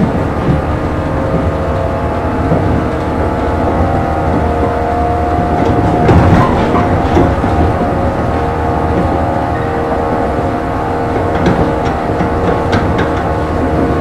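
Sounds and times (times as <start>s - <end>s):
electric train motor whine: 0.0s - 14.0s
train clatter: 0.0s - 14.0s
wheel-on-rail rumble: 0.0s - 14.0s.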